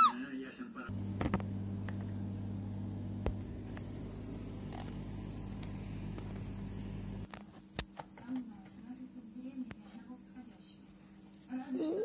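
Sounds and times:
steady low hum: 0.9s - 7.4s.

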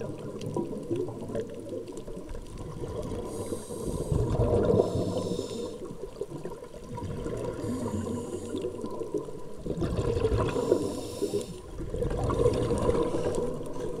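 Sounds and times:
water rushing and bubbling: 0.0s - 14.0s
high hiss: 4.8s - 5.8s.

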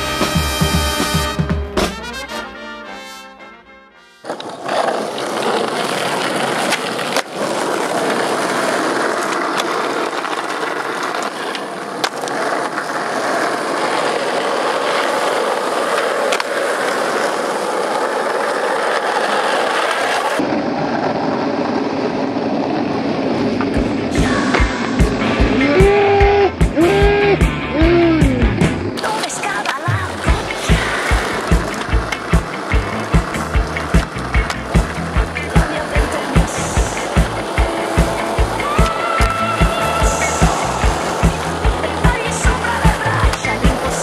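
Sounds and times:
skateboard wheels rolling on asphalt: 0.0s - 1.9s, 4.0s - 44.0s
music: 0.0s - 4.3s, 24.1s - 29.0s, 30.2s - 44.0s
skateboard clicks: 4.2s - 25.0s, 28.9s - 44.0s.

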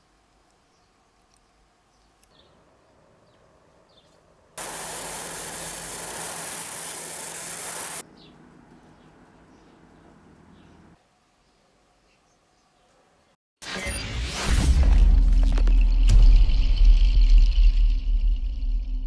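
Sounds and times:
loud rushing hiss: 4.6s - 8.0s.

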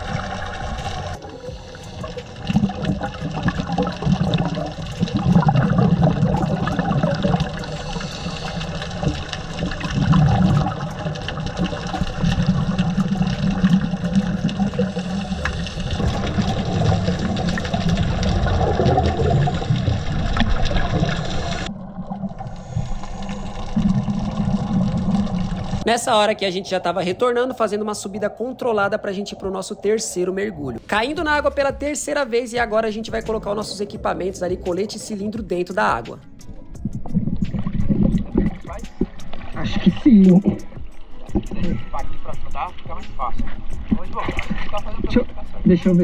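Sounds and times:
faint clicks and crackles: 0.0s - 25.8s
water gurgling underwater: 0.0s - 25.8s, 36.6s - 41.9s, 43.4s - 46.0s
scuba bubbles: 0.0s - 25.9s, 36.5s - 42.2s.

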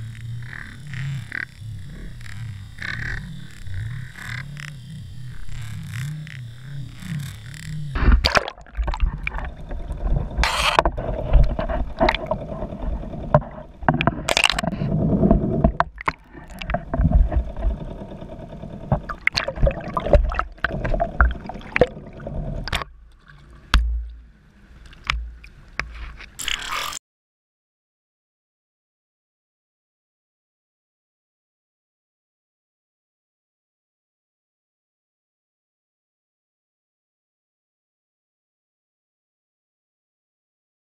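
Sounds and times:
faint steady hum: 0.0s - 27.0s
water sloshing and gurgling: 0.2s - 27.0s.

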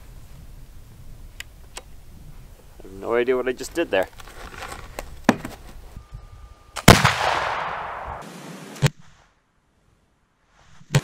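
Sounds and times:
rifle shot with echo: 6.8s - 8.3s.

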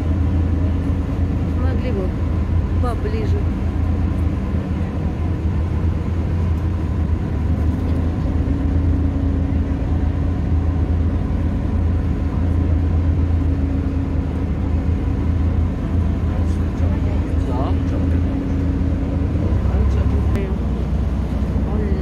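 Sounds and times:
motorboat engine humming: 0.0s - 22.0s.

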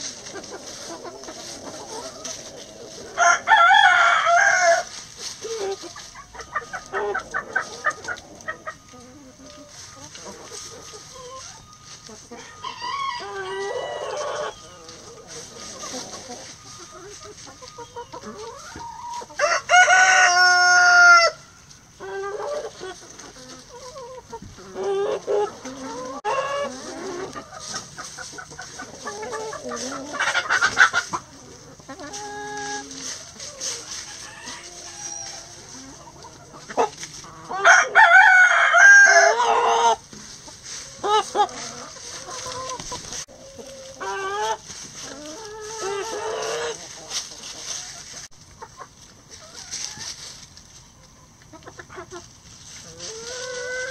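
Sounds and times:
chickens clucking: 0.0s - 53.9s
rooster crowing: 3.2s - 4.9s, 12.3s - 14.6s, 19.4s - 21.4s, 37.5s - 39.9s.

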